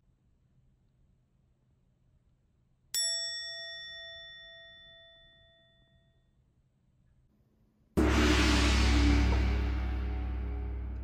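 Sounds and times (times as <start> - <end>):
struck bell tone: 3.0 - 6.4.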